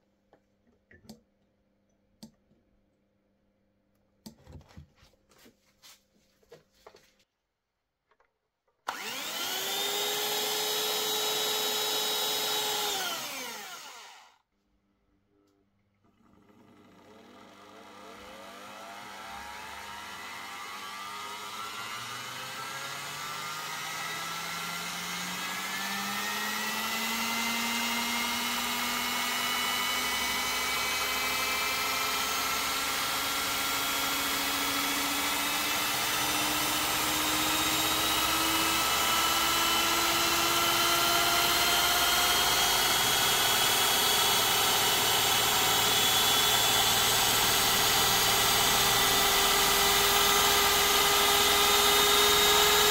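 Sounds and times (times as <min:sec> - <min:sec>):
hand mixer motor whining: 0:08.9 - 0:14.4, 0:16.3 - 0:52.9.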